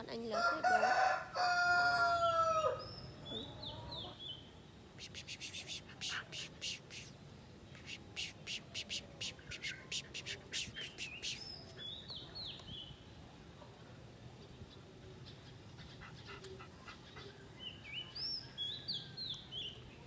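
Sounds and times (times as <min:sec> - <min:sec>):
bird singing whistled notes: 0:17.6 - 0:19.9.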